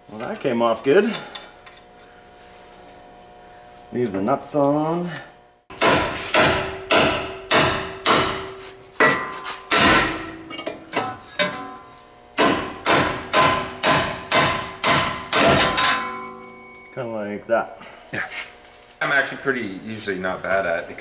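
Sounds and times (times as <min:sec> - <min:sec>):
hammer striking steel: 0:05.7 - 0:17.0.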